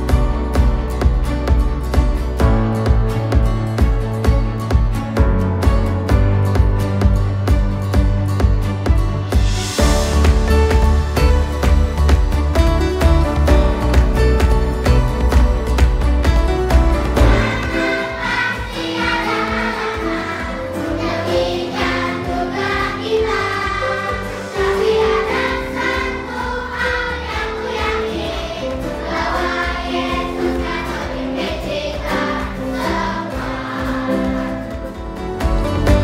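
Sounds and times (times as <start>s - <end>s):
instrumental accompaniment: 0.0s - 36.0s
children's choir singing: 17.0s - 36.0s.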